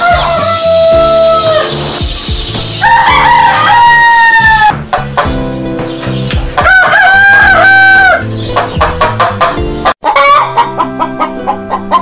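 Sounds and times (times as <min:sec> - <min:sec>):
rooster crowing: 0:00.0 - 0:01.8, 0:02.8 - 0:04.7, 0:06.6 - 0:08.2
background music: 0:00.0 - 0:12.0
chicken clucking: 0:08.5 - 0:12.0.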